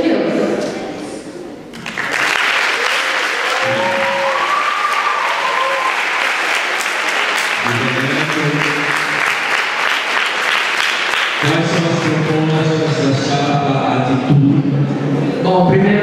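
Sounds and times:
audience clapping: 0:01.7 - 0:12.9
person talking: 0:07.6 - 0:09.0.

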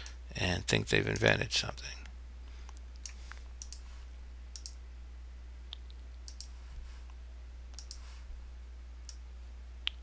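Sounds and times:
steady low hum: 0:00.0 - 0:10.0
computer mouse clicking: 0:02.7 - 0:03.8, 0:04.5 - 0:04.8, 0:05.7 - 0:06.6, 0:07.7 - 0:08.0.

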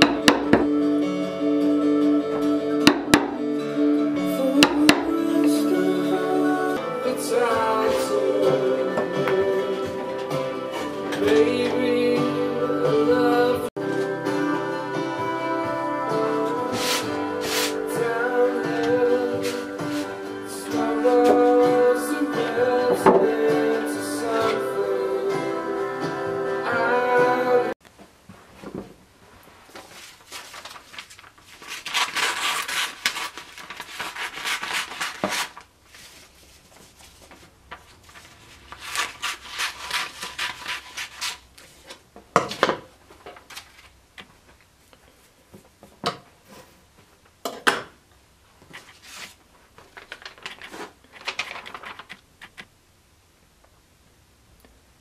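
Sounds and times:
paper rustling: 0:16.4 - 0:20.2, 0:29.5 - 0:45.2, 0:48.6 - 0:52.7
scissors snipping paper: 0:31.6 - 0:35.6, 0:38.7 - 0:41.4.

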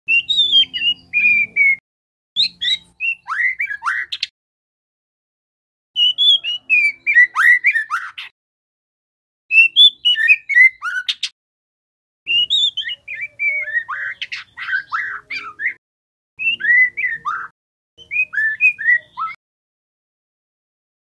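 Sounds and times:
bird singing whistled notes: 0:00.1 - 0:01.8, 0:02.4 - 0:04.3, 0:06.0 - 0:08.3, 0:09.5 - 0:11.3, 0:12.3 - 0:15.8, 0:16.4 - 0:19.4.

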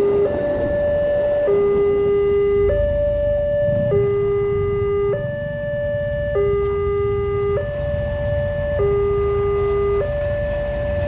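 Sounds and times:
low rumbling noise: 0:00.0 - 0:08.8
two-tone crossing alarm: 0:00.0 - 0:11.0.

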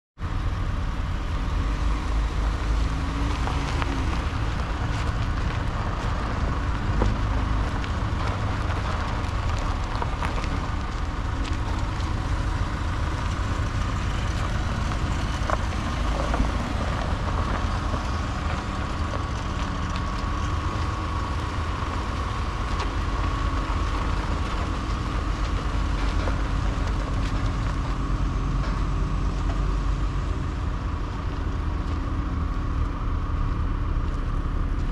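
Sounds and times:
car engine running: 0:00.2 - 0:34.9.

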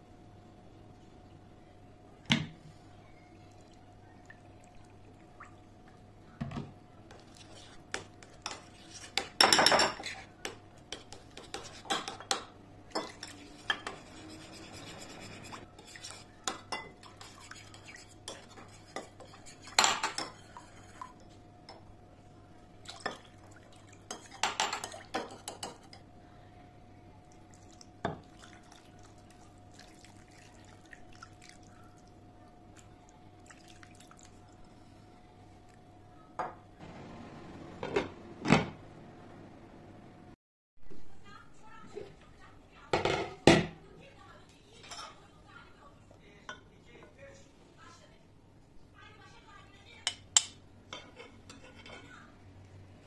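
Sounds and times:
spoon scraping ceramic bowl: 0:07.1 - 0:10.3, 0:10.9 - 0:12.3, 0:13.0 - 0:21.1, 0:51.0 - 0:52.1.

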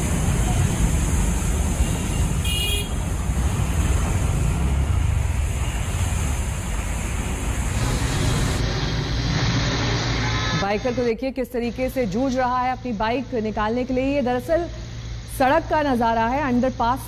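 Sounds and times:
floodwater rushing: 0:00.0 - 0:10.6
wind: 0:00.0 - 0:17.0.

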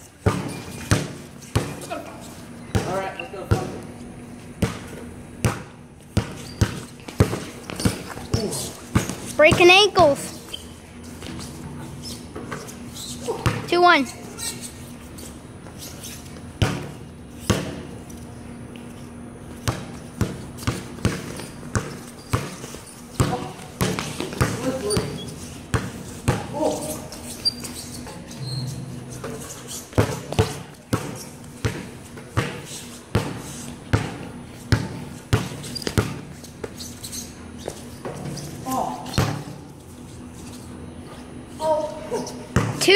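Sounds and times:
basketball bouncing on concrete: 0:00.2 - 0:01.8, 0:02.7 - 0:03.8, 0:04.6 - 0:10.3, 0:12.3 - 0:14.0, 0:16.3 - 0:18.0, 0:19.5 - 0:26.6, 0:28.5 - 0:36.9, 0:39.1 - 0:39.6, 0:42.5 - 0:42.9.

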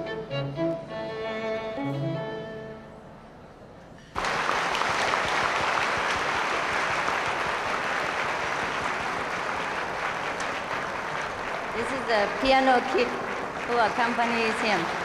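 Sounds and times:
audience applauding: 0:04.1 - 0:15.0.

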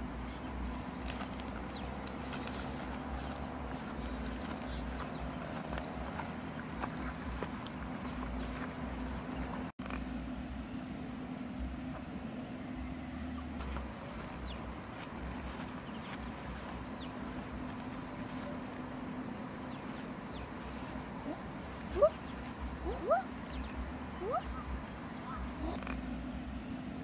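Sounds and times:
insects chirping and buzzing: 0:00.0 - 0:27.0
short rising calls: 0:11.9 - 0:26.6.

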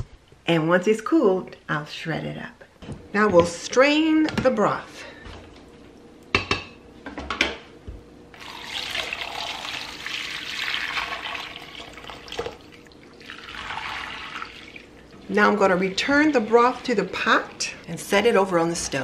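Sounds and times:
broth splashing into a bowl: 0:08.4 - 0:15.3.

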